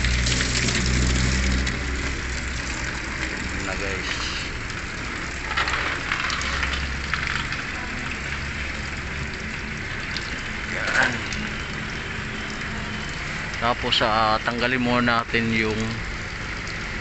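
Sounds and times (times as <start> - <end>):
coolant splashing from radiator: 0.0 - 17.0.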